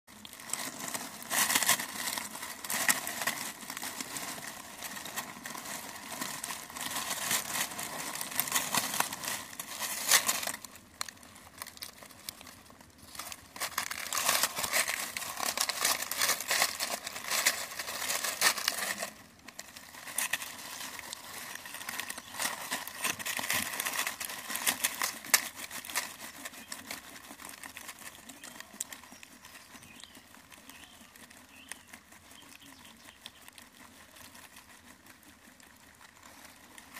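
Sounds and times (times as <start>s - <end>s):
dry leaves crackling and rustling: 0.1s - 36.9s.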